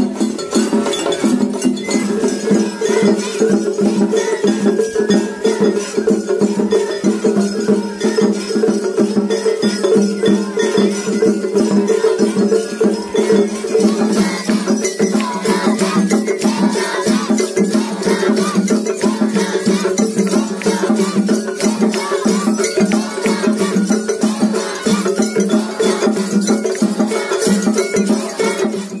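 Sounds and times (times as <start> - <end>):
fast steady drumming: 0.0 - 29.0
rattling metal percussion: 0.0 - 29.0.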